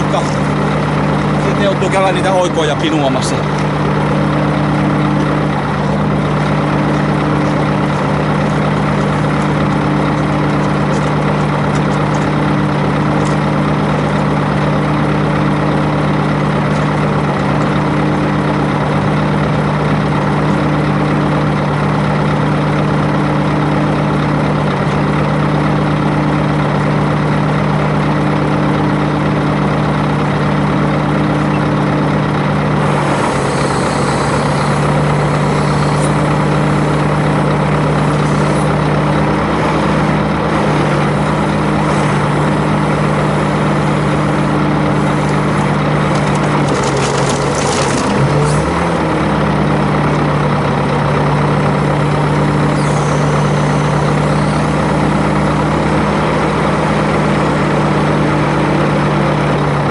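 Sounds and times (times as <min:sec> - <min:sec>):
truck diesel engine idling: 0:00.0 - 0:59.9.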